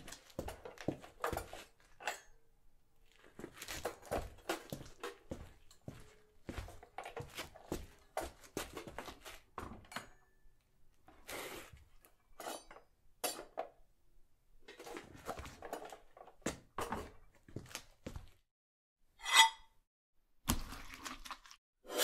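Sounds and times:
small clinks and scrapes of props: 0.0s - 10.3s, 11.0s - 13.7s, 14.7s - 17.3s.

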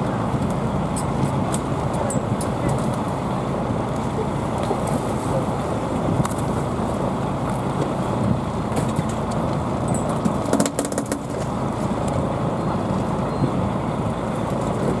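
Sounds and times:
boat engine rumble: 0.0s - 15.0s
sharp clicks and knocks: 8.8s - 11.5s.

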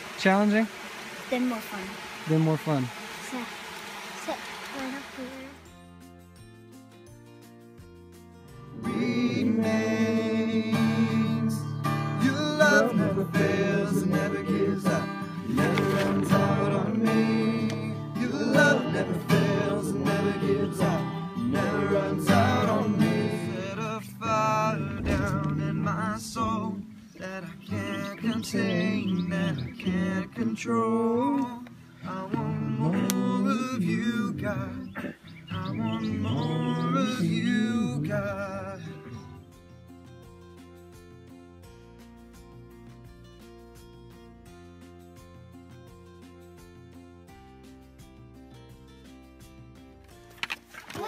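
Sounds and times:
acoustic guitar strummed: 4.8s - 50.4s
person singing: 8.7s - 39.4s.

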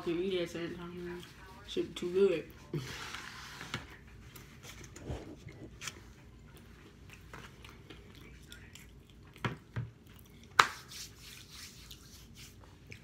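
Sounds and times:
person chewing food: 4.6s - 10.6s, 11.8s - 13.0s.

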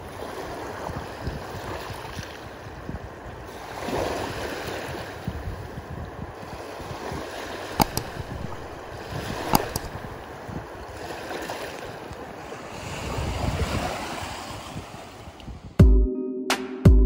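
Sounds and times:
small waves lapping on shore: 0.0s - 15.7s
wind on microphone: 0.0s - 15.8s
sharp clicks: 7.8s - 10.2s.

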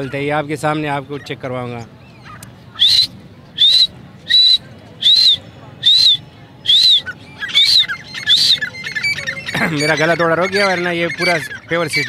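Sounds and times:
man whistling short notes: 2.8s - 7.1s.

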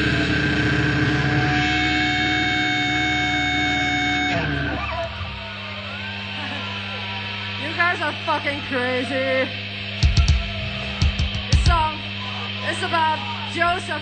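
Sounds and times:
death metal music: 0.0s - 6.2s, 9.5s - 11.9s.

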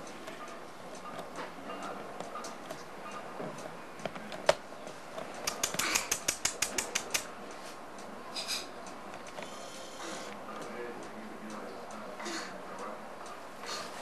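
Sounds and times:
quick run of clicks: 5.3s - 7.3s.

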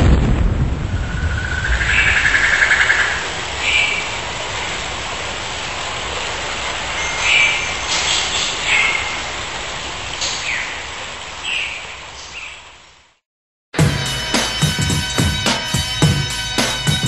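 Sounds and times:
whitewater rushing: 1.8s - 11.2s.

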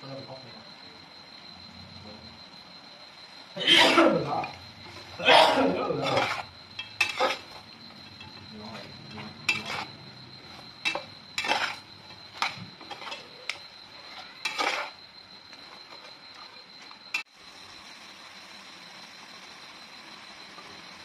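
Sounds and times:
low sizzle from hot pan: 0.0s - 21.0s
metal spatula scraping pot: 5.8s - 15.0s.

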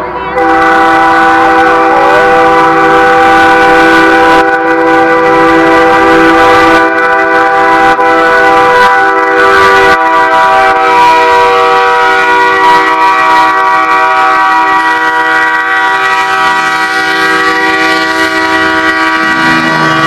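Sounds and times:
truck air horn blast: 0.0s - 20.0s.

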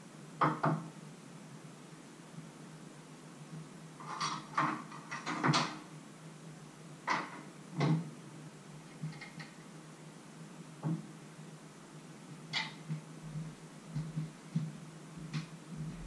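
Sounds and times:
low steady hum: 5.8s - 16.0s.

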